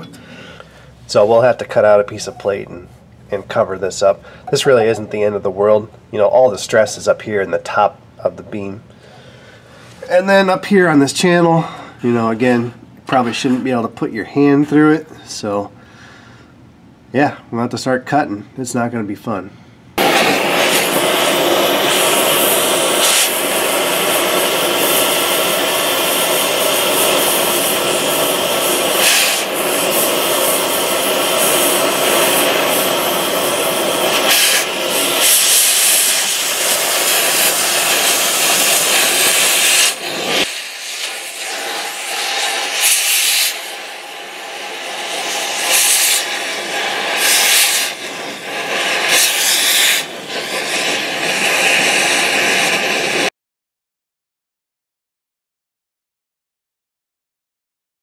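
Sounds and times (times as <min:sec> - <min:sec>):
cutting torch hissing: 0:20.0 - 0:53.3.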